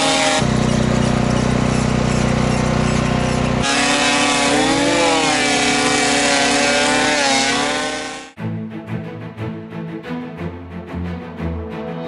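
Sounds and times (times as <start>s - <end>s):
machine sound with drifting pitch: 0.0s - 8.4s
power tool or engine noise: 0.0s - 8.4s.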